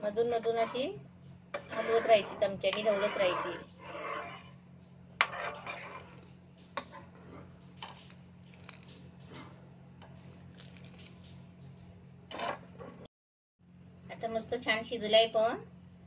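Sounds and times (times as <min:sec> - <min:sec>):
steady low hum: 0:00.0 - 0:16.0
spoon scraping a pan: 0:00.2 - 0:00.9, 0:01.5 - 0:04.6, 0:05.2 - 0:07.6
milk simmering: 0:05.2 - 0:12.0.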